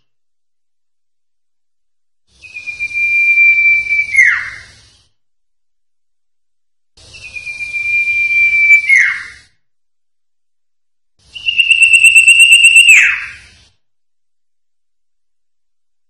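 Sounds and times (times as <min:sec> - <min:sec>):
bird singing whistled notes: 0:02.4 - 0:04.7, 0:07.0 - 0:09.4, 0:11.3 - 0:13.5.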